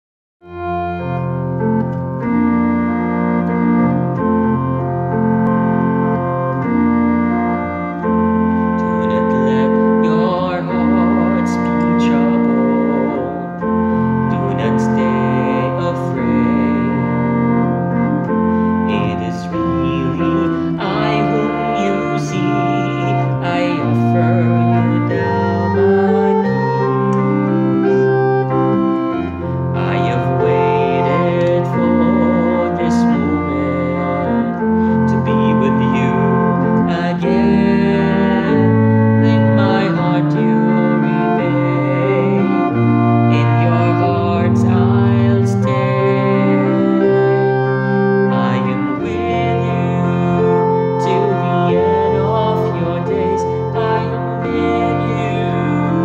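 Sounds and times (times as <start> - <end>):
organ chords: 0.4 - 56.0
man singing: 8.7 - 28.1, 29.1 - 47.2, 48.2 - 56.0.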